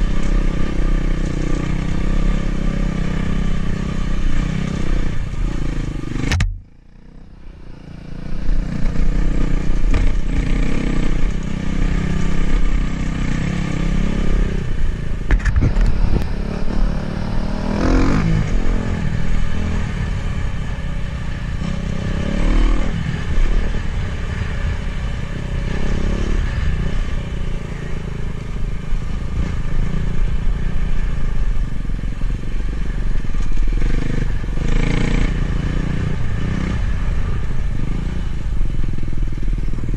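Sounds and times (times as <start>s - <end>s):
dirt bike engine revving: 15.7s - 20.0s, 33.7s - 38.3s.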